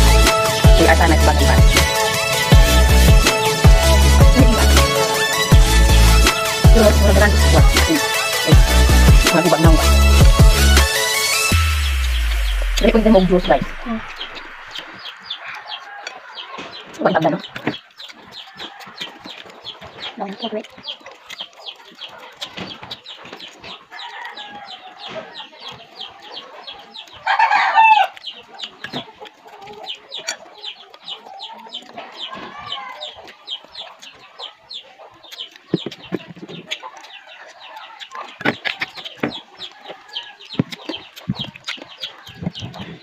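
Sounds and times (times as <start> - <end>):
knocks of eating: 0.0 - 27.3, 28.0 - 43.0
chicks peeping: 0.0 - 43.0
hens clucking: 0.0 - 43.0
rooster crowing: 14.1 - 17.0, 23.9 - 25.4, 27.2 - 28.2.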